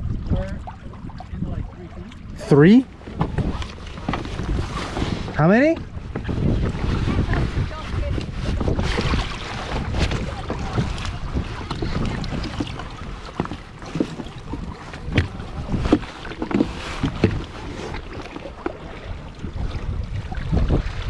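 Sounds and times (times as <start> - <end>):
water splashing: 0.0 - 21.0
wind rumbling on microphone: 0.0 - 21.0.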